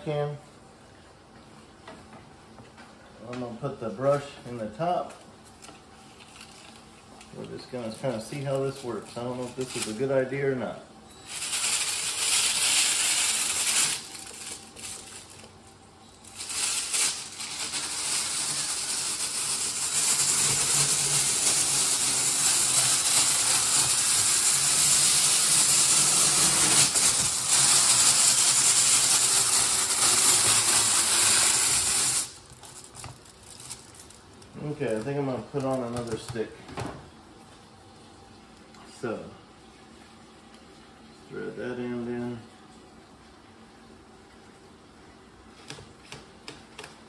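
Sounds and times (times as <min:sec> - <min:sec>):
drill spinning brush in hose: 0:11.2 - 0:15.5, 0:16.2 - 0:34.1.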